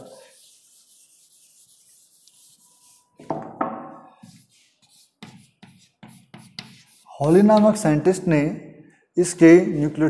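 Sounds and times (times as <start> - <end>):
chalk strokes on board: 0.0 - 3.3, 4.1 - 7.8
duster wiping chalkboard: 0.0 - 3.3, 4.0 - 7.8.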